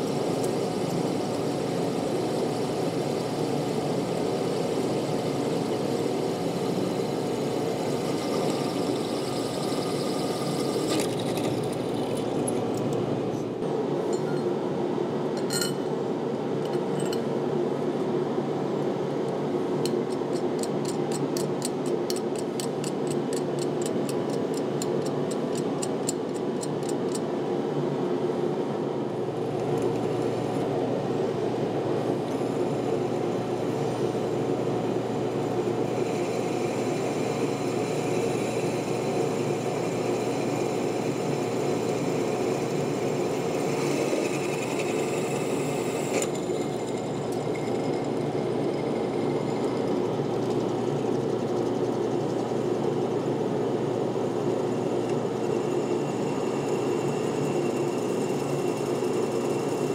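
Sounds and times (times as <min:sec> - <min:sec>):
drill bit cutting whine: 0:00.0 - 0:12.6, 0:32.1 - 0:53.3, 0:54.0 - 0:59.9
drill press motor running: 0:00.0 - 0:13.6, 0:29.2 - 0:59.9.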